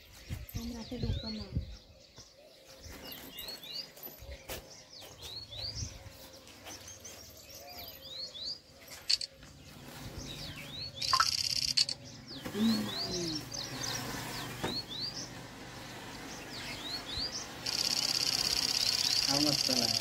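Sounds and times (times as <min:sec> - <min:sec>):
small birds chirping: 0:00.0 - 0:20.0
loud fast rattle: 0:17.6 - 0:20.0.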